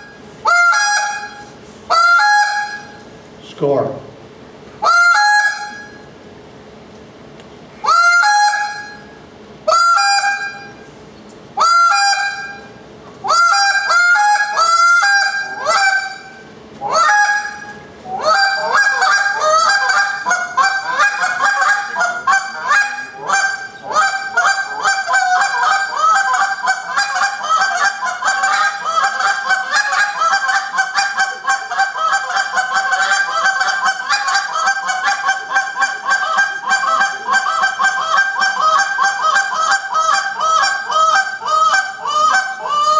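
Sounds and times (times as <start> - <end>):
goose call honks: 13.3 - 42.9.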